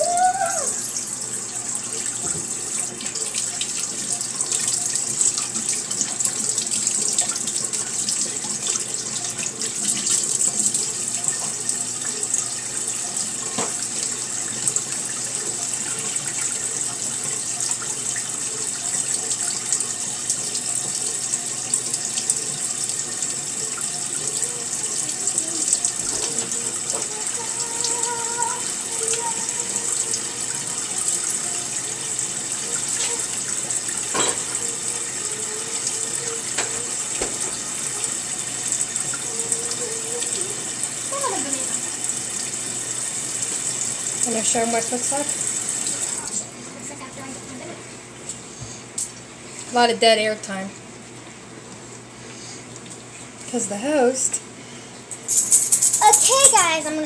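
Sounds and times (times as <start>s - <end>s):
tap water splashing into sink: 1.7s - 40.4s.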